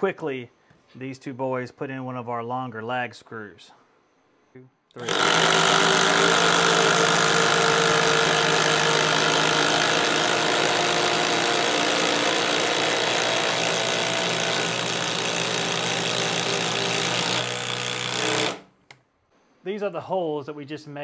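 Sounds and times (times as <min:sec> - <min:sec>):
impact drivers hammering: 0:05.0 - 0:18.7.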